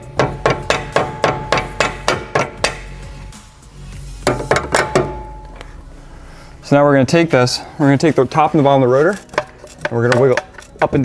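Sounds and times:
hammer striking steel drift: 0.1s - 3.0s, 4.2s - 5.6s.

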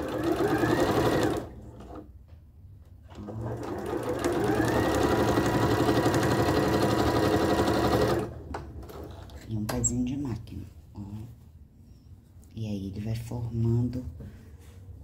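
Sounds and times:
sewing machine stitching: 0.0s - 2.0s, 3.1s - 9.4s.

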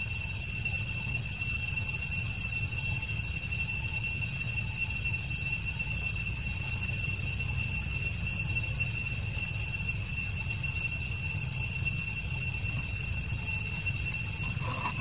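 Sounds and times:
high-pitched insect drone: 0.0s - 15.0s
faint chirps: 11.4s - 15.0s.

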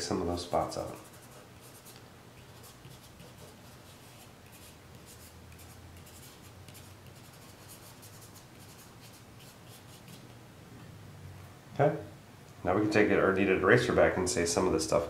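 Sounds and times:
charcoal scratching on paper: 0.6s - 10.3s.

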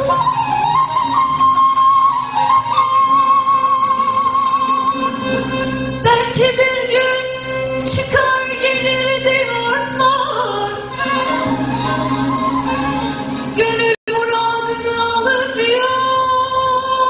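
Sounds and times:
ensemble of long-necked lutes: 0.0s - 17.0s
woman singing with vibrato: 6.0s - 17.0s.

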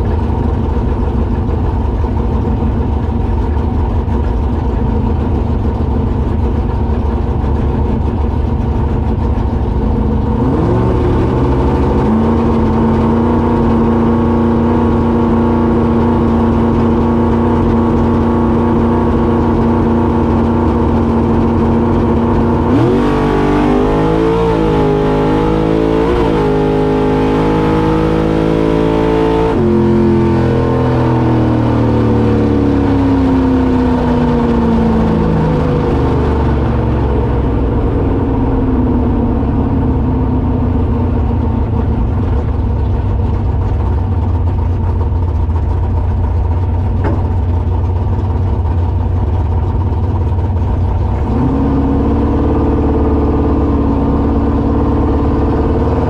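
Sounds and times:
vehicle engine revving: 0.0s - 56.0s.

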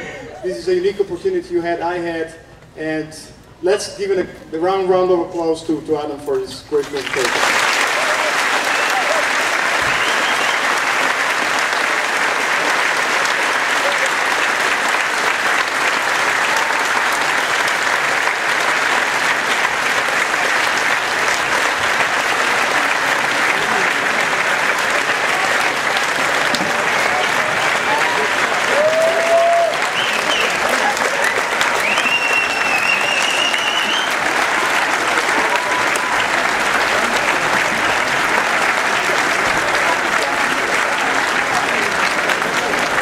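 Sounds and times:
audience applauding: 6.8s - 43.0s
high held whistle: 9.8s - 10.6s, 31.8s - 34.1s.

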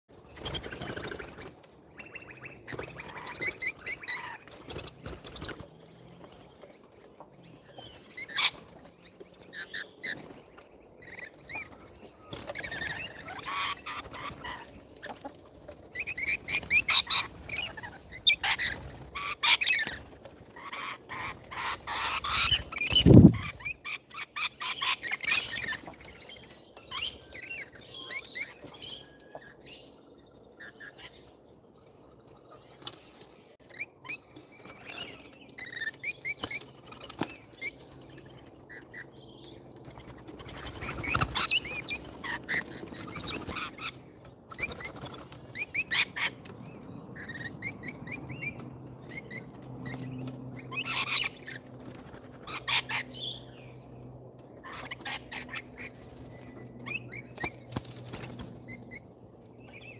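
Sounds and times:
parrots chattering and screeching: 2.5s - 4.9s, 8.1s - 8.7s, 12.4s - 15.2s, 16.0s - 20.0s, 20.6s - 25.9s, 40.1s - 46.4s, 50.6s - 51.6s, 52.4s - 53.4s, 54.6s - 57.6s
wing flaps: 22.8s - 23.5s, 57.4s - 58.8s.

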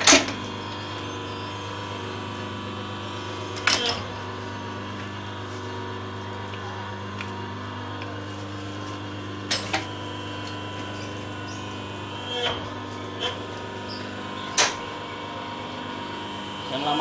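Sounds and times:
machine double clunk: 0.0s - 0.4s
machine motor humming: 0.0s - 17.0s.

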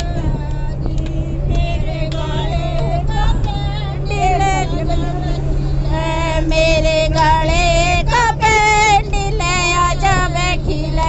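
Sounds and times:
bus engine hum: 0.0s - 11.0s
women singing in high voices: 0.0s - 11.0s.

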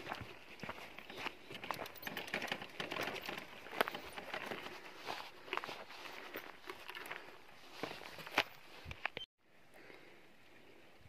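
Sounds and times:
footsteps crunching on stony path: 0.0s - 9.3s.

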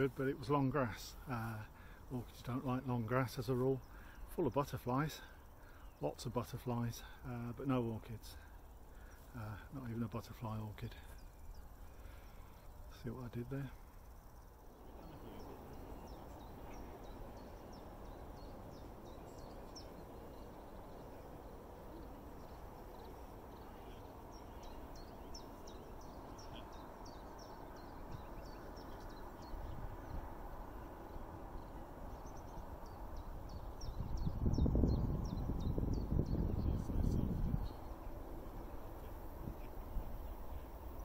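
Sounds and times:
small birds chirping: 0.0s - 41.0s
wind rumbling on microphone: 14.6s - 41.0s.

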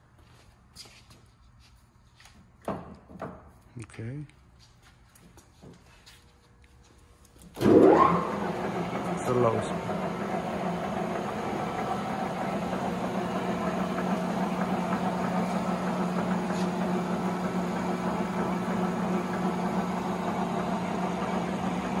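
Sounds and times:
lathe running: 7.6s - 22.0s.

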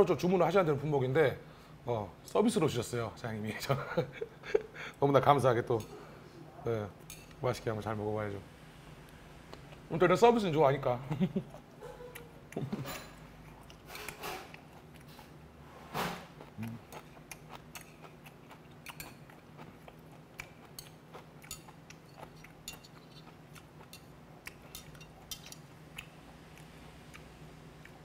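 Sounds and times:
chewing: 11.5s - 15.4s, 16.3s - 28.0s.

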